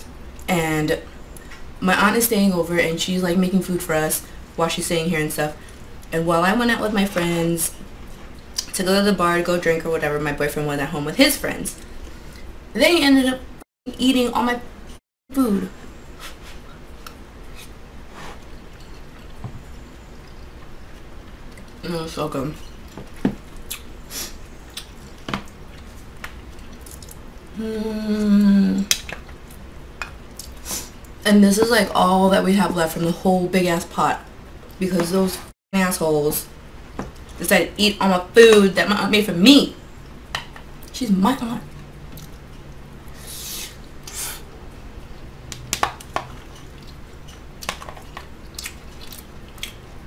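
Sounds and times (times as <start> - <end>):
person chewing: 22.8 - 23.9, 24.6 - 27.5, 46.0 - 49.9
woman humming while eating: 27.5 - 28.9.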